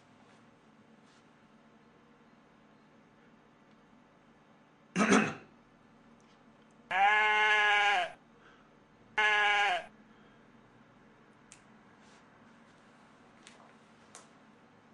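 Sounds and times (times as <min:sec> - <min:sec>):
man imitating bleating animal: 0:06.9 - 0:08.2, 0:09.2 - 0:09.9.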